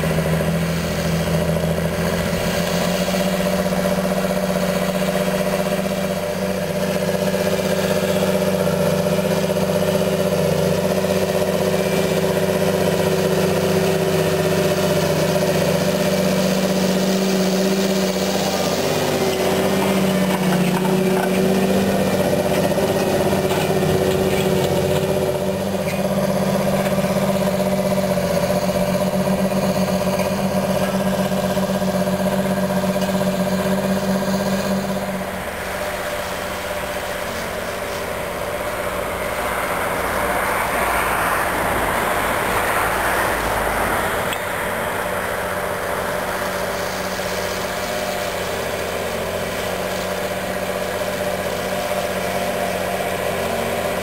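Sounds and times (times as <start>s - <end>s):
rushing noise: 0.0s - 54.0s
tractor diesel engine under load: 0.0s - 54.0s.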